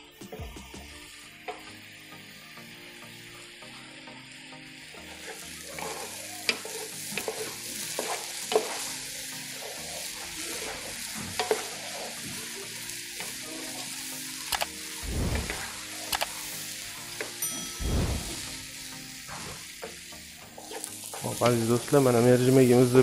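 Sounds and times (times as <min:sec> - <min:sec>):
vegetables sizzling in butter: 0:00.0 - 0:23.0
spatula scraping and knocking pan: 0:05.2 - 0:08.9, 0:09.6 - 0:12.4.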